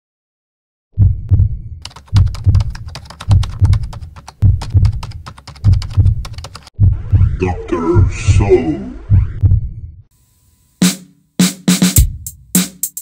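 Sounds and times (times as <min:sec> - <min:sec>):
kick drum beats: 0:01.0 - 0:07.3, 0:09.1 - 0:09.7, 0:11.4 - 0:13.0
hi-hat ticking: 0:10.8 - 0:13.0.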